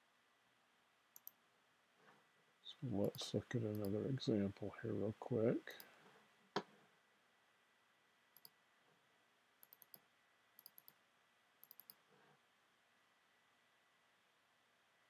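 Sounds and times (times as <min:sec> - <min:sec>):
faint computer mouse clicks: 0:01.2 - 0:01.4, 0:08.4 - 0:08.6, 0:09.6 - 0:10.0, 0:10.6 - 0:11.0, 0:11.6 - 0:12.0.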